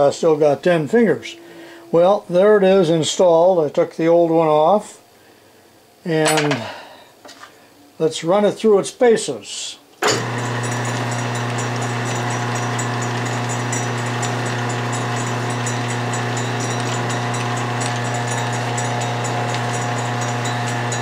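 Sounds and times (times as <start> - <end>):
lathe motor humming: 10.0 - 21.0.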